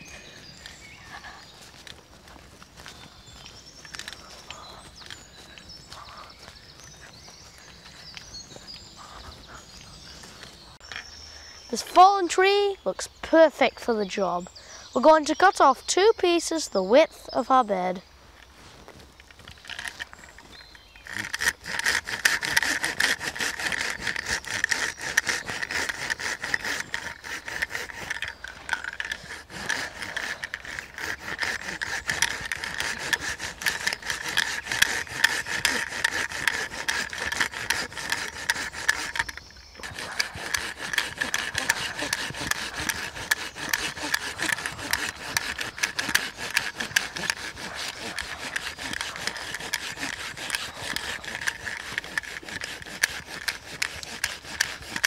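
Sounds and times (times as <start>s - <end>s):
hand saw cutting log: 11.8s - 13.0s, 19.4s - 55.0s.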